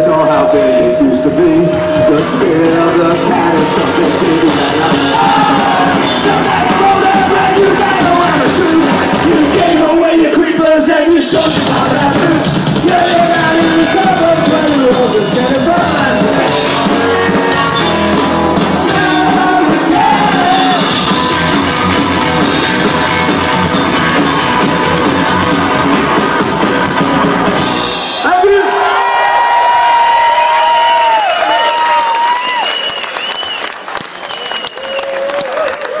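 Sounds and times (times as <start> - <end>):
electric guitar lead line: 0.0 - 10.2, 11.3 - 28.2
upright bass: 0.0 - 28.2
drums: 0.0 - 33.6.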